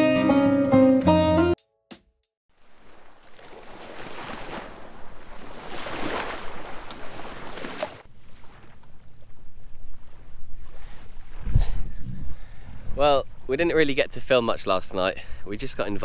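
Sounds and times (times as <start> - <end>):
small waves breaking on shore: 2.5 - 11.4
wind rumbling on microphone: 4.7 - 14.1.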